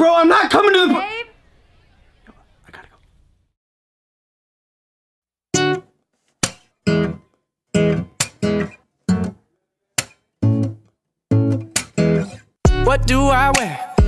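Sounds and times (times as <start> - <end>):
choppy guitar chords: 5.6 - 5.9, 6.9 - 9.4, 10.0 - 14.0.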